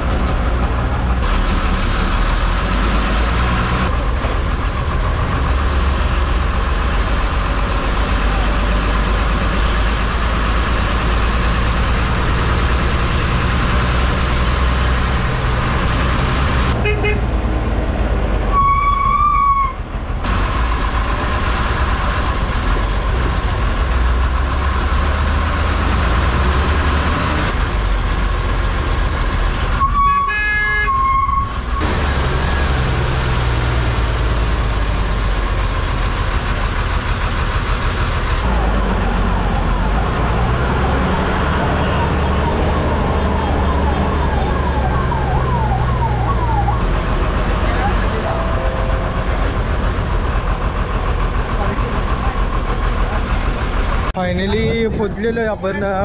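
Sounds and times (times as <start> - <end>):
bus engine and road rumble: 0.0 - 56.0
vehicle horn honking: 16.8 - 17.3, 29.8 - 31.5.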